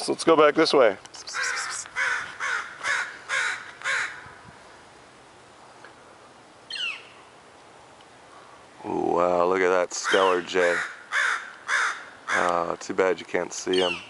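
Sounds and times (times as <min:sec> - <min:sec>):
jay harsh rasping calls: 0:01.3 - 0:04.3, 0:10.0 - 0:12.6.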